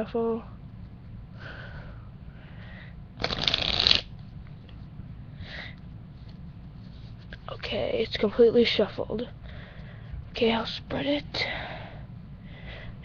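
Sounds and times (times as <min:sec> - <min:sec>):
cards rustling: 0:03.2 - 0:04.1
cards riffle-shuffled: 0:03.2 - 0:04.2.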